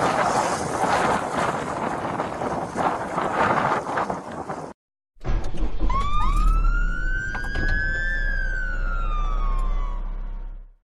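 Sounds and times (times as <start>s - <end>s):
siren wailing: 5.6s - 10.7s.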